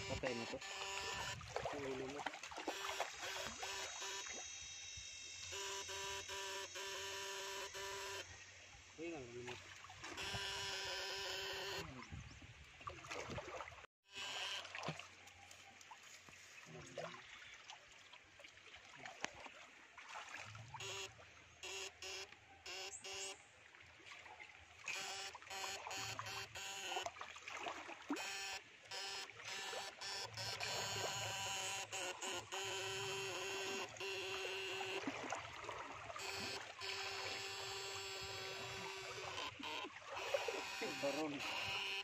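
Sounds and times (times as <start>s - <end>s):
faint running water: 0.0s - 4.6s, 14.5s - 21.6s
electric fishing shocker buzzing: 0.0s - 12.0s, 14.0s - 15.0s, 20.6s - 23.4s, 24.8s - 27.2s, 28.1s - 42.0s.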